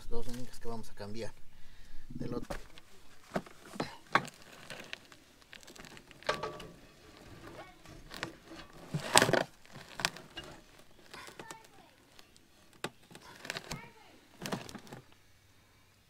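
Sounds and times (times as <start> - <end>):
metal clatter: 3.3 - 11.7
metal knocks and clicks: 6.2 - 9.4.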